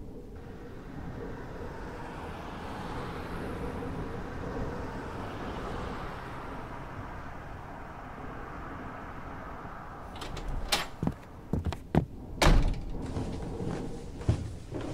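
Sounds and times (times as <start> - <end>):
cars driving past: 0.3 - 11.6.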